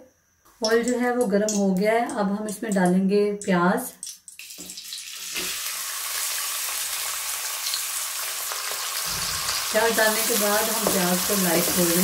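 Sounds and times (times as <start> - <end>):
onions sizzling in hot oil: 4.3 - 12.0
low bump: 9.1 - 9.7.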